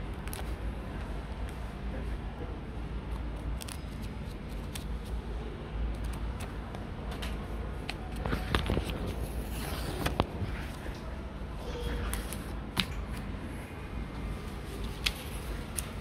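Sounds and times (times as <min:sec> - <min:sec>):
paper pages rustling: 0:03.1 - 0:05.2, 0:07.9 - 0:10.9, 0:14.6 - 0:16.0.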